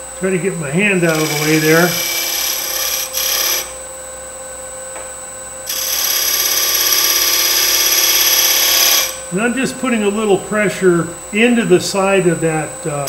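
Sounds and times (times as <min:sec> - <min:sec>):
lathe whine: 0:00.0 - 0:13.0
scraper cutting wood: 0:01.1 - 0:03.8, 0:05.7 - 0:09.2.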